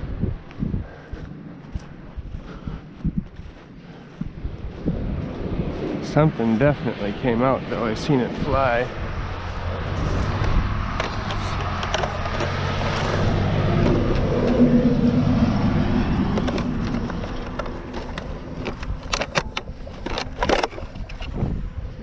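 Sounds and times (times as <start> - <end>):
vehicle passing by: 0.0 - 19.1
toy truck clicking in dry grass: 16.2 - 21.4.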